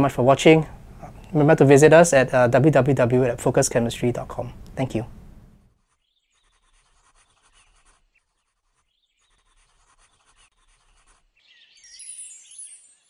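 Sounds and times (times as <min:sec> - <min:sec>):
pencil scratching on paper: 0:05.7 - 0:11.5
high chirps: 0:11.5 - 0:13.0.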